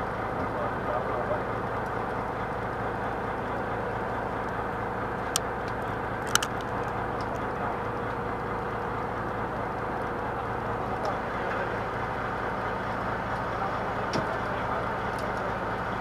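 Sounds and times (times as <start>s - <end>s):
boat engine droning: 0.0s - 16.0s
sharp clicks: 5.3s - 7.4s.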